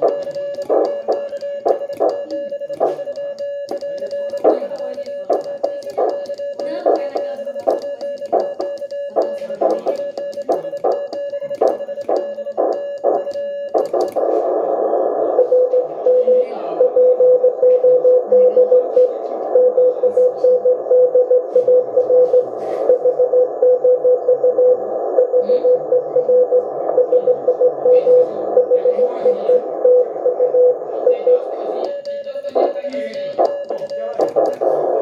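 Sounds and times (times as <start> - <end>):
morse sidetone: 0.0 - 14.3
morse code tone: 0.0 - 35.0.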